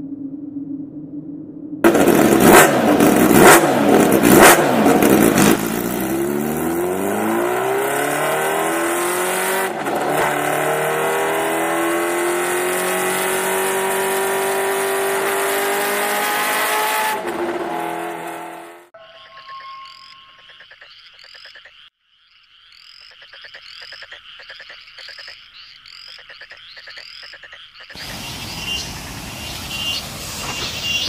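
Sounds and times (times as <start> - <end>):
vehicle engine revving and accelerating: 1.8 - 18.9.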